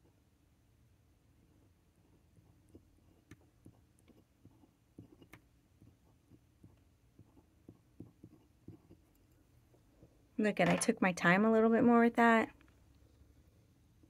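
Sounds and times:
pen nib scratching on paper: 0:01.4 - 0:09.4.

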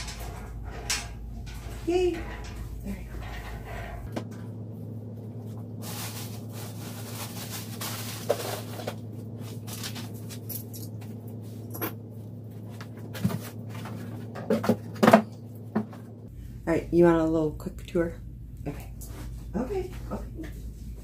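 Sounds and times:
steady low hum: 0:00.0 - 0:21.0
rustling: 0:05.4 - 0:10.4.

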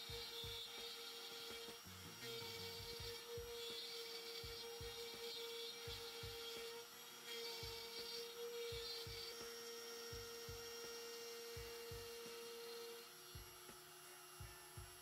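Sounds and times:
soft low thumps: 0:00.0 - 0:00.8, 0:01.9 - 0:03.6, 0:05.8 - 0:06.6, 0:08.4 - 0:09.3, 0:10.0 - 0:12.2, 0:13.2 - 0:15.0
router motor whine: 0:00.0 - 0:15.0.

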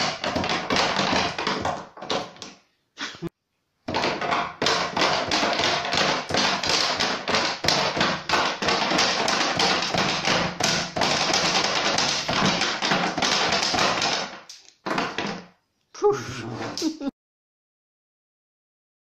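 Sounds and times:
wooden puppet feet clattering on board: 0:00.0 - 0:02.6, 0:03.9 - 0:15.5.

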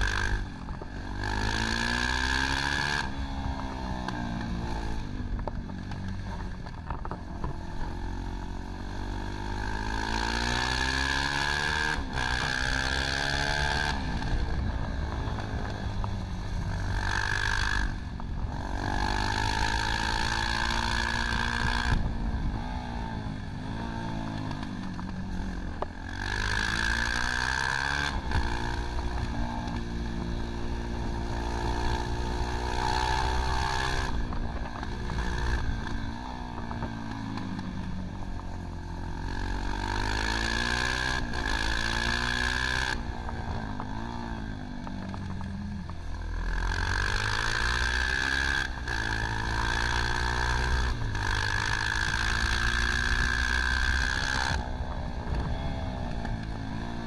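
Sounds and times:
motorcycle engine revving: 0:00.0 - 0:57.0
wind rushing over microphone: 0:50.6 - 0:57.0.

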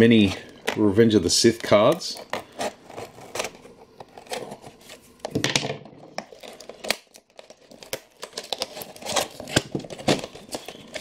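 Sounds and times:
scissors cutting cardboard: 0:02.1 - 0:05.0, 0:06.4 - 0:11.0
plastic packaging crinkling: 0:06.0 - 0:11.0.

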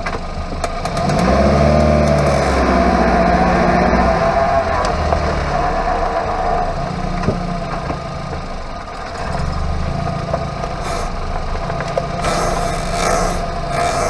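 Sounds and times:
tyre rumbling on road: 0:00.0 - 0:14.0
steady hum: 0:05.4 - 0:14.0.

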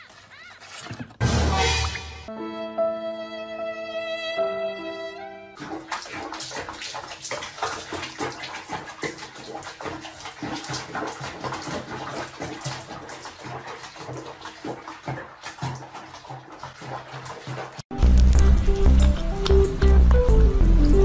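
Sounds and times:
water sloshing and splashing: 0:05.4 - 0:21.0.

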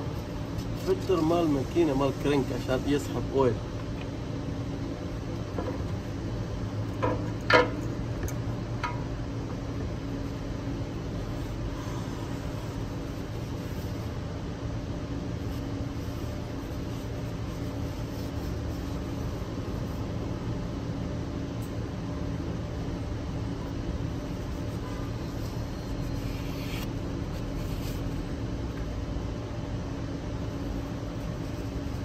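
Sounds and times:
faint constant tone: 0:00.0 - 0:32.0
low mechanical hum: 0:00.0 - 0:32.0.

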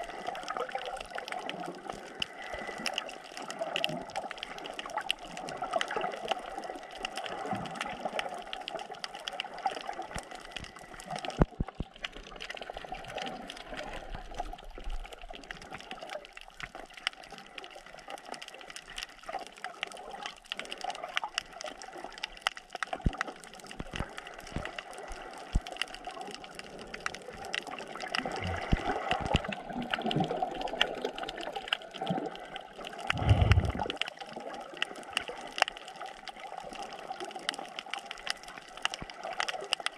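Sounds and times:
underwater rush of water: 0:00.0 - 0:39.9
low underwater thump: 0:33.1 - 0:34.0.

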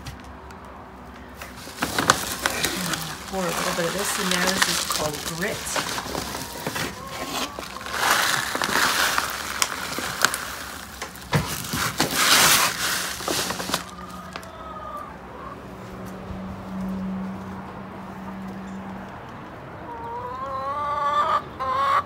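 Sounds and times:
grit poured into plastic scoop: 0:01.8 - 0:13.9.

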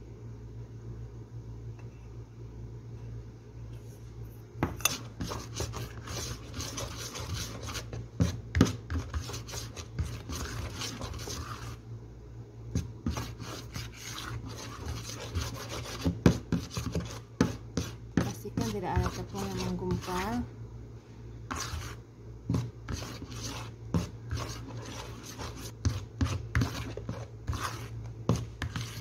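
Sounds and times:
mixer beaters scraping a bowl: 0:04.8 - 0:11.8, 0:12.8 - 0:20.5, 0:21.5 - 0:29.0.

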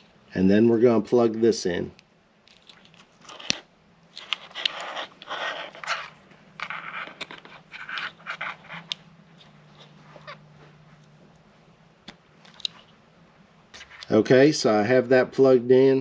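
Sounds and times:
plastic and wires rustling: 0:02.4 - 0:11.1.

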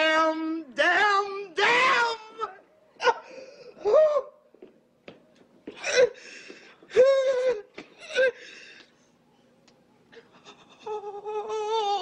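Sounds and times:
woman sobbing: 0:06.9 - 0:08.6, 0:10.1 - 0:12.0.

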